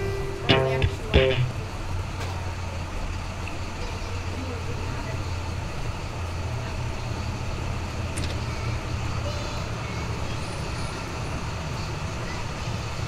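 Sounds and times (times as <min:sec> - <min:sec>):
low rumbling hum and hiss: 0:00.0 - 0:03.9.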